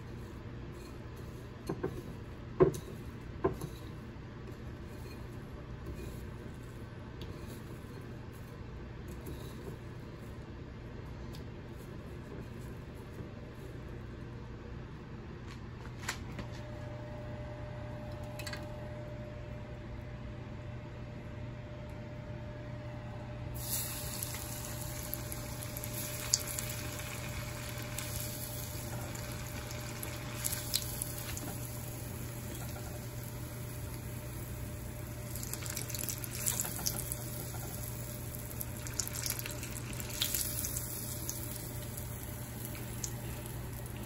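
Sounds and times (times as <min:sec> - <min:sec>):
steady low hum: 0:00.0 - 0:44.0
food sizzling in oil: 0:23.6 - 0:44.0.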